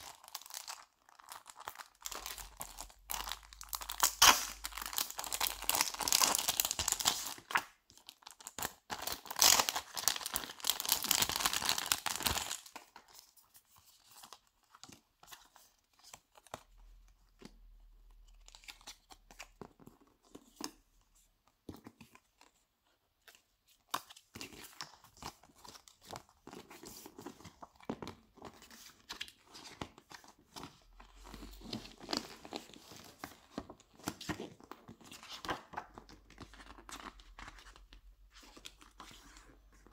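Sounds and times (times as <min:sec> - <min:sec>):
plastic and paper crinkling: 0:00.0 - 0:20.8.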